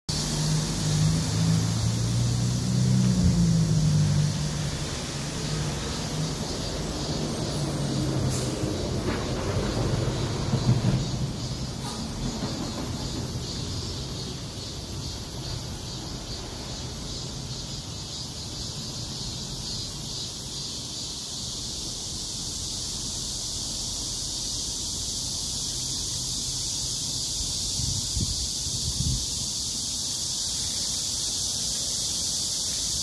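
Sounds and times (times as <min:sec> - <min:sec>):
constant high hiss: 0:00.1 - 0:33.0.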